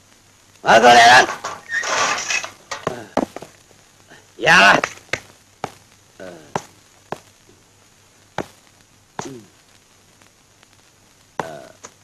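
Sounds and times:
sharp knocks: 1.3s - 3.5s.

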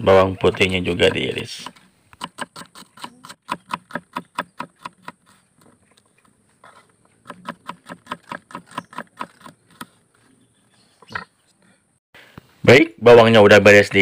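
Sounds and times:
knife chopping on wooden board: 1.6s - 5.2s, 7.2s - 9.9s.

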